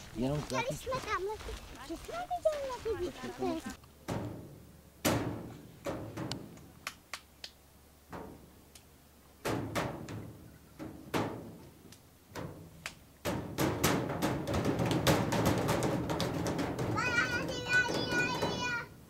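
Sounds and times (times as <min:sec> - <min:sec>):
hands drumming on hollow surface: 0:13.2 - 0:18.7.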